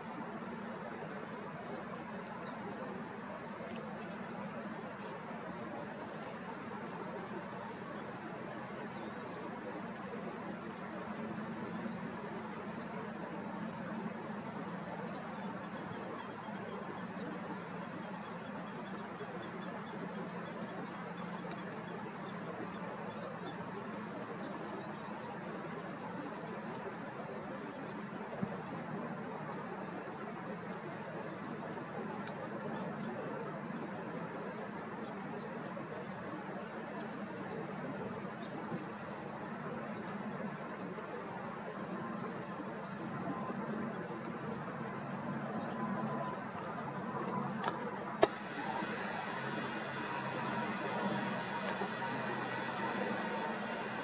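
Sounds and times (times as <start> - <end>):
faint click: 8.8 - 10.9, 12.8 - 13.2, 19.8 - 21.9, 32.2 - 32.5, 43.7 - 44.4, 46.2 - 54.0
high-pitched whine: 48.1 - 54.0
even hiss: 48.2 - 54.0.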